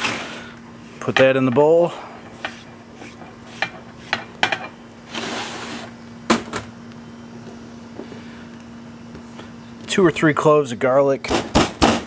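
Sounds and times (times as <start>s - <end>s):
low steady hum: 0.0s - 11.5s
knife scraping cutting board: 2.4s - 4.3s.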